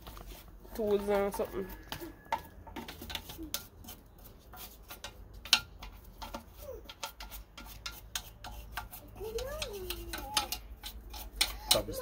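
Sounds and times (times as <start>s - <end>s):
small brush scrubbing metal: 0.0s - 12.0s.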